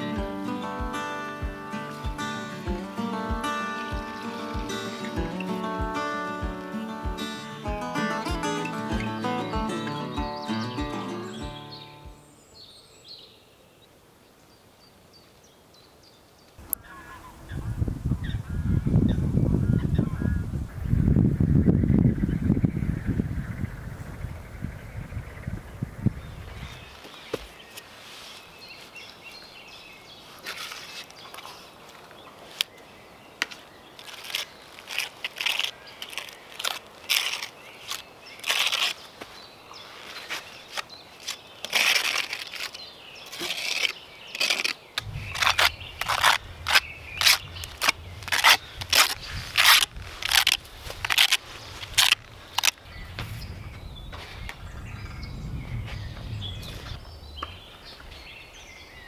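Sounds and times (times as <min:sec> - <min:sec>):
trowel scraping on concrete: 0:40.1 - 0:52.7.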